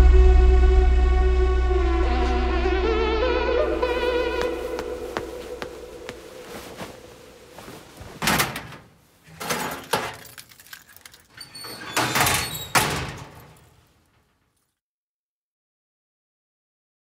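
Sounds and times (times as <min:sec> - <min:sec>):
metal locker doors clattering shut: 0:08.2 - 0:10.4, 0:11.3 - 0:13.7
keys jingling: 0:09.4 - 0:12.0.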